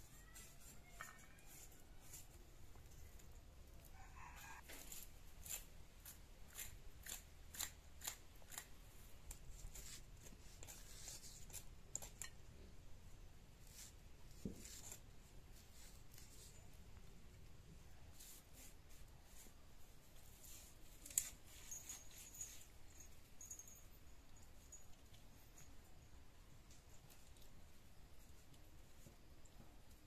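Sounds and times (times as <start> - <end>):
distant rooster crowing: 3.9 - 4.7.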